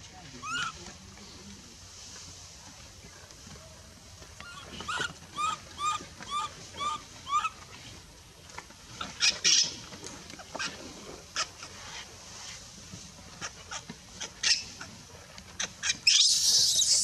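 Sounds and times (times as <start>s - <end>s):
baby monkey crying: 4.5s - 7.5s, 15.8s - 17.0s.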